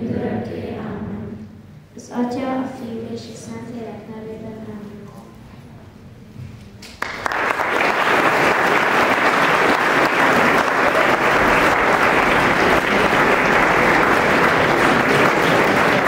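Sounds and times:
audience applauding: 6.8s - 16.0s.

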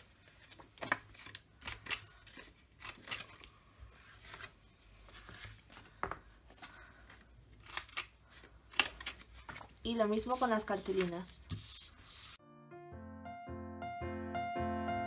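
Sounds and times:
paper handling: 0.0s - 6.9s, 7.6s - 12.4s.

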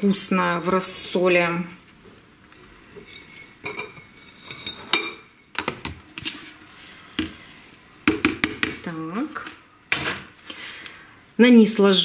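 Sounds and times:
glass jars clinking: 2.9s - 5.6s.

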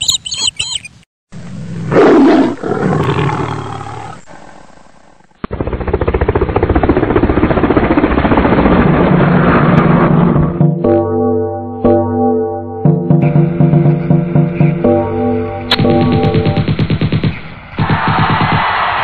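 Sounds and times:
lion roaring: 1.6s - 5.3s
rough pulsing rumble: 5.4s - 11.0s.

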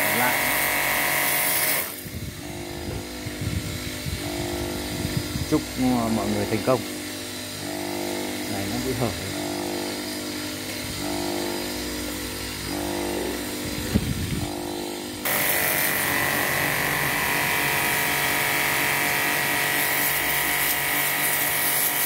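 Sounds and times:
high-pressure water jet hissing: 0.0s - 2.3s, 12.7s - 22.0s
pressure washer motor hum: 0.0s - 22.0s.

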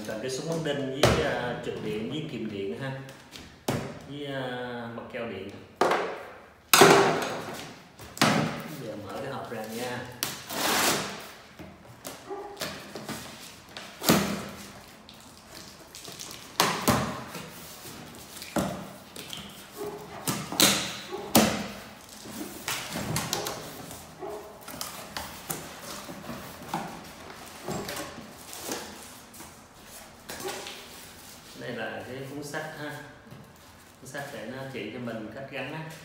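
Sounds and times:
scraping and tearing: 8.6s - 11.4s, 12.2s - 31.6s
box cutter slitting tape: 10.2s - 11.3s.

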